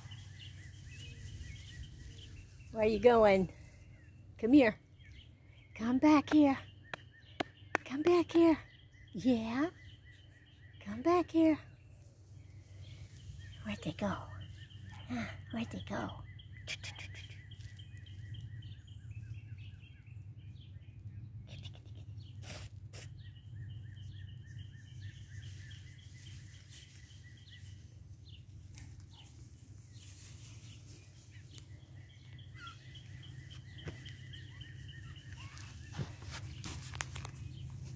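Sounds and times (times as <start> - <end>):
low outdoor rumble: 11.6 - 37.9
high chirping trills: 30.0 - 36.8.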